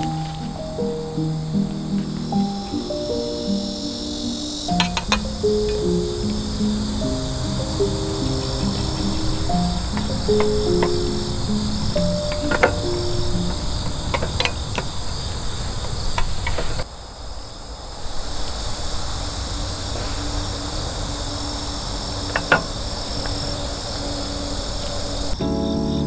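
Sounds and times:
crickets trilling: 0.0s - 26.0s.

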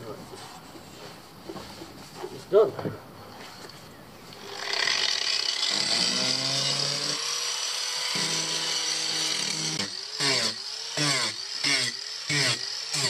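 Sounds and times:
power tool grinding into wood: 4.3s - 13.0s.

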